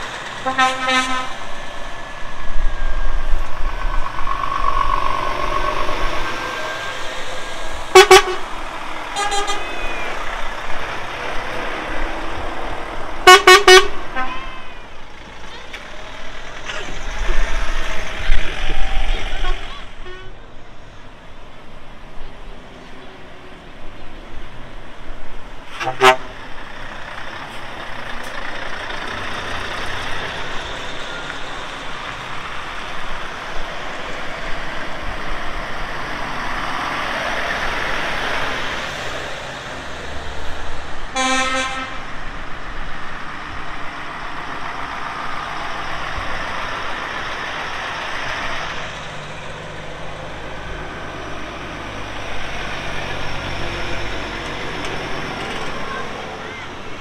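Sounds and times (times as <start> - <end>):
lorries driving past: 0.0 - 57.0
horn blast: 0.4 - 1.4, 7.9 - 8.5, 9.2 - 10.0, 13.2 - 14.7, 41.2 - 42.1.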